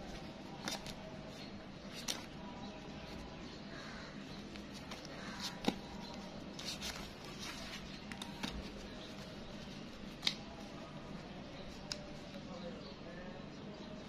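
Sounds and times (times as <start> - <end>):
paper banknotes rustling: 0.0 - 3.2, 4.4 - 10.9
banknotes snapping: 0.5 - 1.1, 1.9 - 2.4, 4.4 - 7.2, 10.0 - 10.6.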